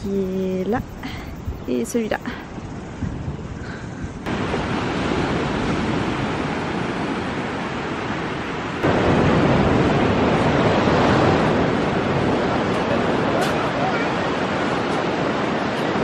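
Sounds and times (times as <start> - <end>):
wind on microphone: 0.0 - 16.0
surf breaking on beach: 4.2 - 16.0.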